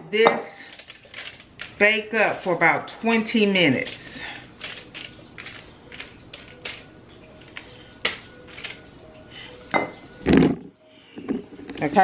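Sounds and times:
light taps and clicks of utensils: 0:00.2 - 0:02.6, 0:03.2 - 0:10.2.

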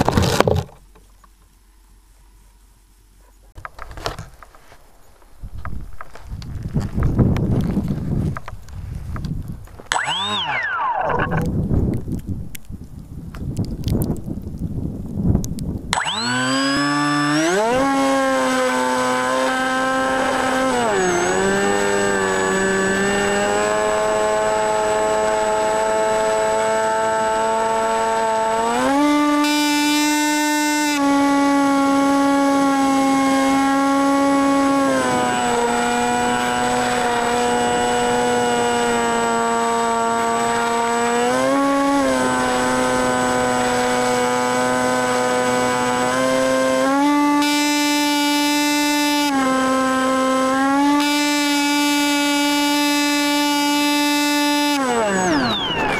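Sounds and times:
model plane motor whine: 0:09.9 - 0:11.5, 0:15.9 - 0:55.9.

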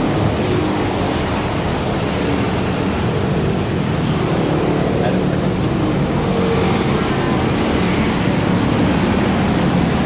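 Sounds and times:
road traffic rushing: 0:00.0 - 0:10.0.

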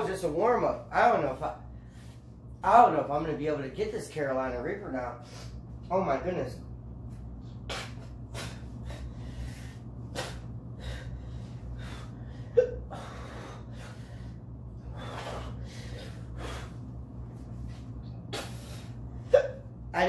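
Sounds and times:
man gasping and panting: 0:07.7 - 0:16.9
man hiccuping: 0:12.6 - 0:12.9, 0:19.2 - 0:19.7.

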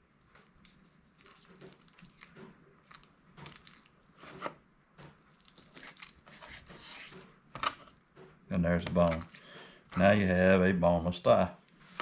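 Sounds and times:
knife cutting raw meat: 0:05.6 - 0:07.2.

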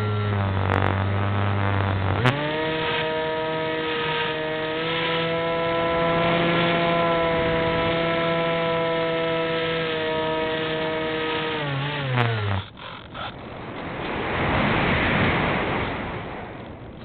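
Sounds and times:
wind noise on camera: 0:00.0 - 0:03.8, 0:11.0 - 0:17.0
model airplane motor and propeller: 0:00.0 - 0:13.6.

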